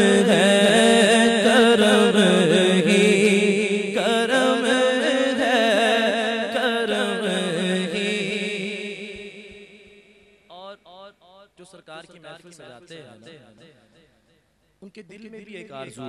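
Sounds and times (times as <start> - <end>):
man singing wavering melody: 0.0 - 9.1.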